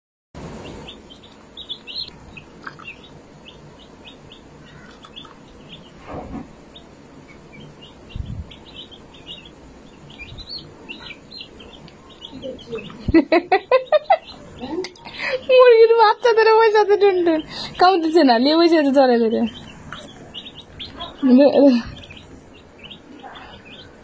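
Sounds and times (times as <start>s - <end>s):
chick peeping: 0.4s - 24.0s
low thumps: 7.9s - 8.9s.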